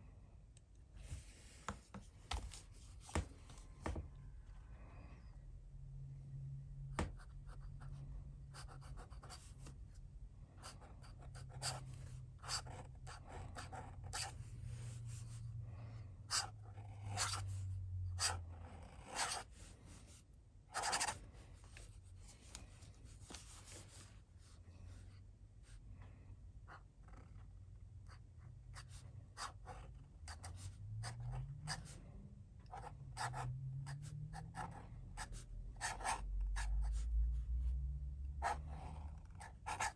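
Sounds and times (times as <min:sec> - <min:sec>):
faint low hum: 0:00.0 - 0:39.9
pen nib scratching paper: 0:10.6 - 0:14.4, 0:16.3 - 0:17.5, 0:18.2 - 0:19.5, 0:20.8 - 0:21.2, 0:32.7 - 0:37.1, 0:38.4 - 0:39.9.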